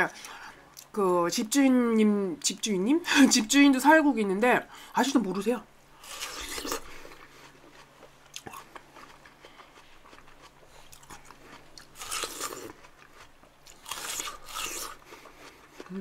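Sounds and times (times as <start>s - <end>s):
person biting watermelon: 6.0s - 15.9s
chewing with small clicks: 6.4s - 16.0s.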